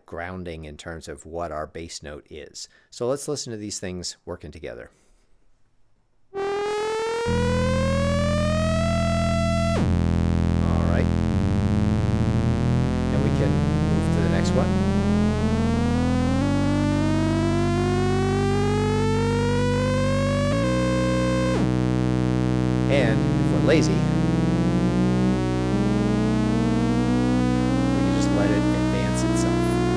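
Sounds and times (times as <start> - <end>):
buzzy synthesizer tone gliding: 6.4 - 29.9
sustained synth bass note: 6.4 - 29.9.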